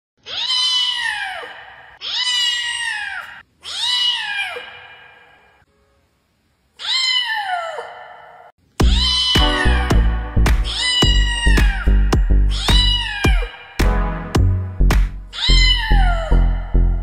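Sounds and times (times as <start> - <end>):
kitten meowing: 0.3 - 4.7, 6.8 - 7.7, 8.9 - 9.9, 10.6 - 13.5, 15.3 - 16.6
music: 8.8 - 15.3, 16.0 - 17.0.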